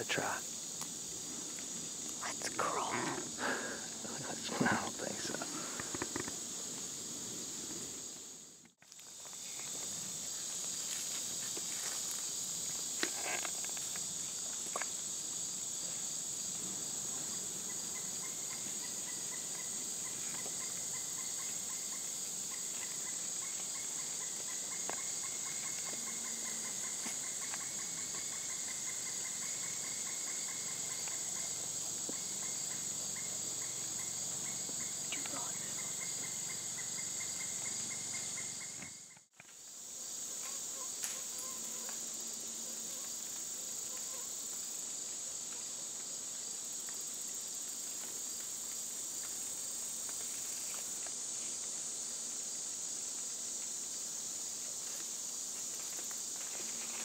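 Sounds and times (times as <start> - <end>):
insect high-pitched shrill: 0.0 - 44.8
insect pulsed lower trill: 15.1 - 42.5.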